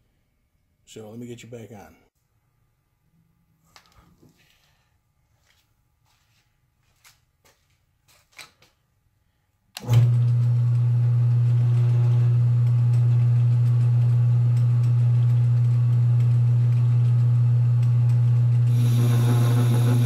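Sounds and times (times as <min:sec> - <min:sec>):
lathe humming: 0:09.8 - 0:20.0.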